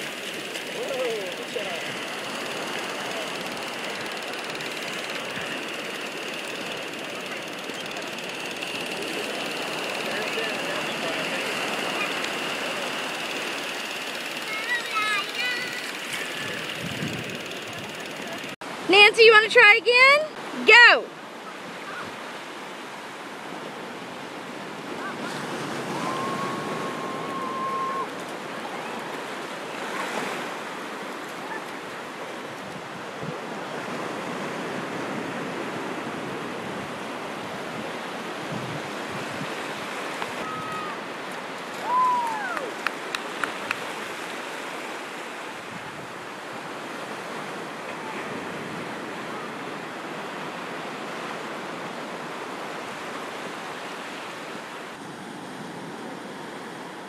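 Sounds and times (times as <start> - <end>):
ocean surf washing on shore: 0.0 - 57.0
faint high calls: 25.8 - 28.2.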